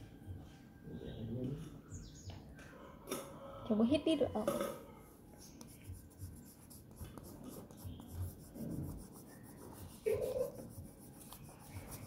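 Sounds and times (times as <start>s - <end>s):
marker scratching on paper: 5.4s - 12.0s.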